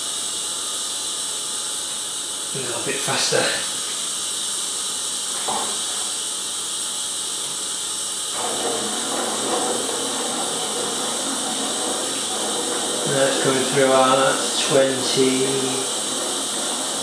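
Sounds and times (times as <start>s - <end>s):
liquid pouring from hose: 8.3s - 17.0s.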